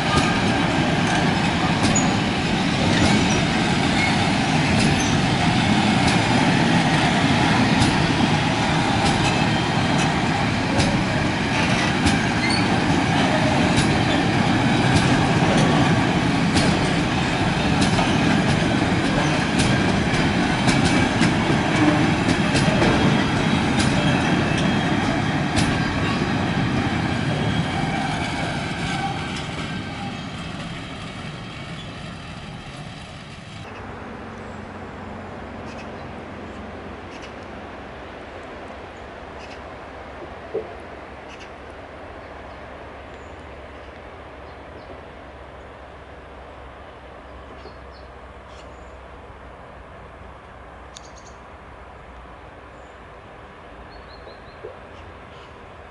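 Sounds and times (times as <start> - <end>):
train wheels clattering on rails: 0.0 - 33.8.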